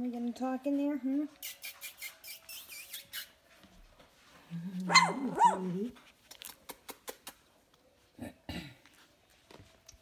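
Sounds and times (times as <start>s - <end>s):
puppy yapping: 4.9s - 5.8s.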